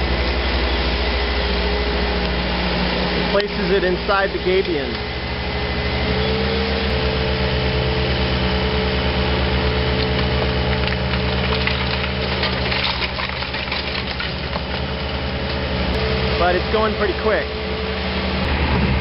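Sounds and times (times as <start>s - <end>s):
excavator diesel engine running: 0.0s - 19.0s
rocks clattering: 10.0s - 15.0s.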